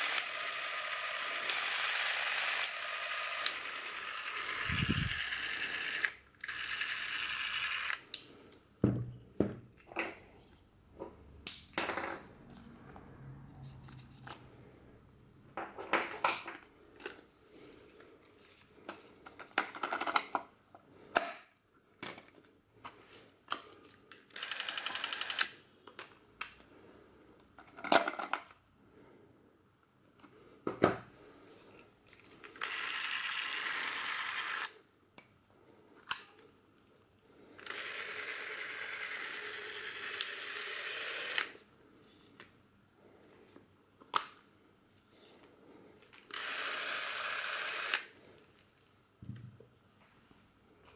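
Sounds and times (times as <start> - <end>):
camera motor whirring: 0.0 - 8.1, 24.3 - 25.5, 32.5 - 34.8, 37.6 - 41.6, 46.3 - 48.1.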